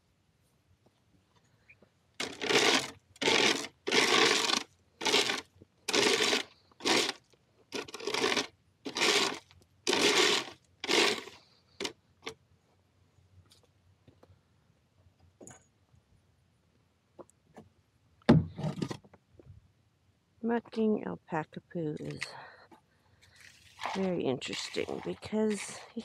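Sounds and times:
scooper scraping through droppings: 2.2s - 7.2s, 7.8s - 11.9s, 23.6s - 26.0s.

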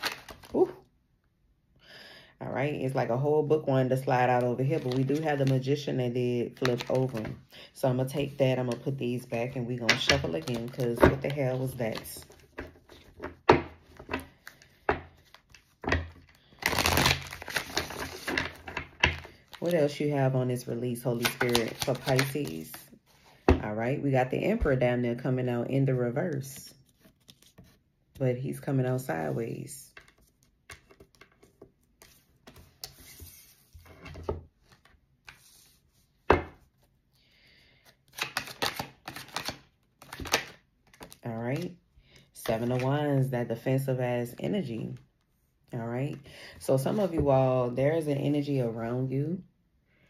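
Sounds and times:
cards being shuffled: 0.0s - 0.6s, 4.4s - 5.6s, 6.5s - 7.4s, 9.6s - 19.6s, 21.1s - 22.8s, 37.7s - 41.7s, 42.4s - 42.9s
cards riffle-shuffled: 4.5s - 5.6s, 6.6s - 7.4s, 21.1s - 22.7s, 37.8s - 41.7s, 42.5s - 42.8s
cards sliding and clicking: 37.8s - 41.2s.

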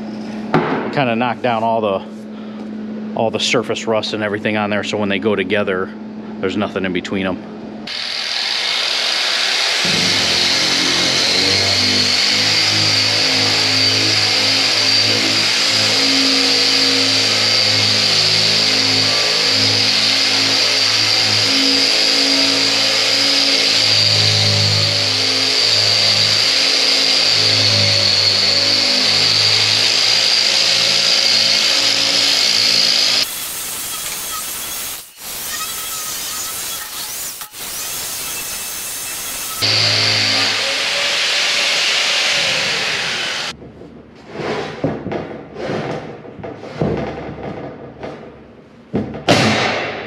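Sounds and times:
drum sander whining on steel: 7.9s - 43.6s.

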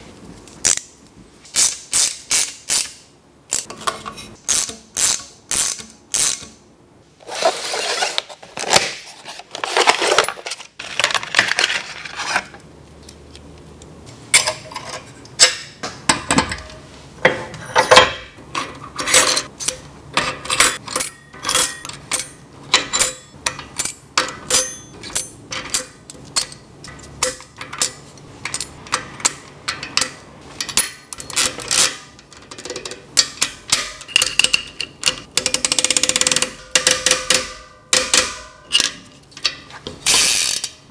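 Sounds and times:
soft scraping of metal parts: 3.6s - 4.4s.

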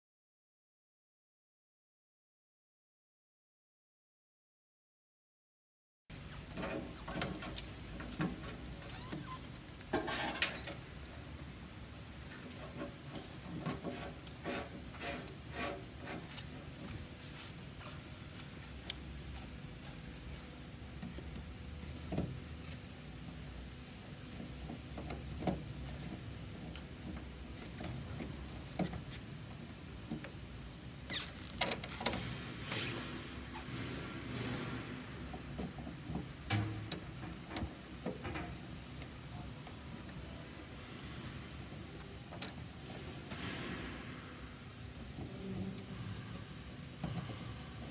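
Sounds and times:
hand scraping metal cabinet: 8.2s - 10.7s, 13.5s - 16.8s, 45.2s - 47.9s.

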